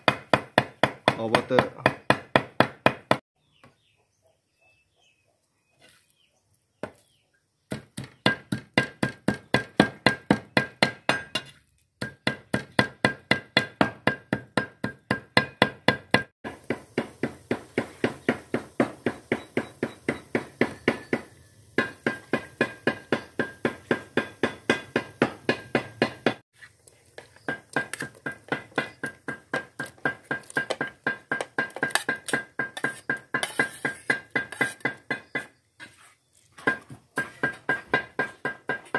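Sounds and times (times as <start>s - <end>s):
cleaver chopping meat on wood: 0.0s - 3.2s, 7.7s - 26.4s, 27.4s - 35.6s.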